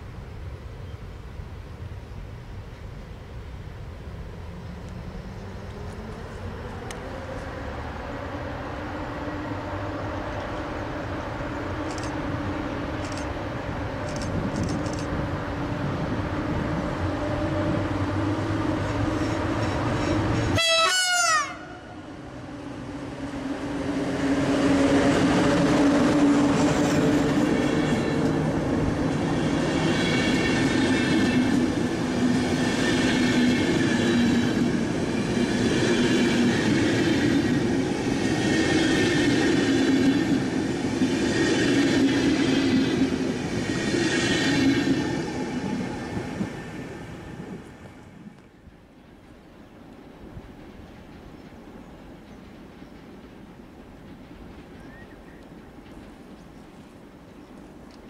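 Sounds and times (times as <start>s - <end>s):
electric locomotive humming: 0.0s - 58.0s
train horn blast: 17.1s - 22.2s.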